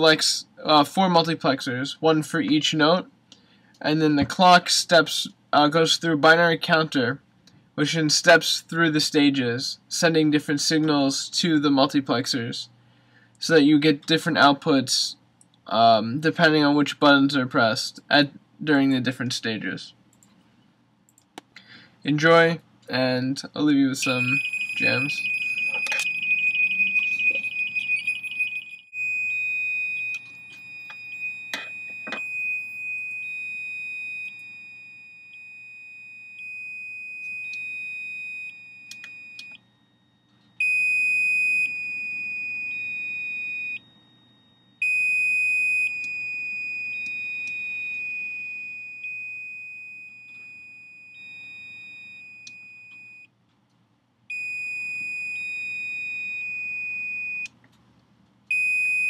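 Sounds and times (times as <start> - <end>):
piezo buzzer beeping: 40.6 - 53.3, 54.3 - 57.5, 58.5 - 59.0.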